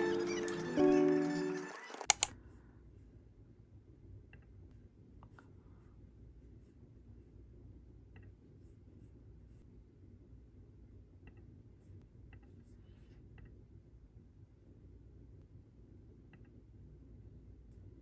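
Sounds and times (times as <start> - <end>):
background music: 0.0 - 2.2
sharp laptop clicks: 2.0 - 2.3.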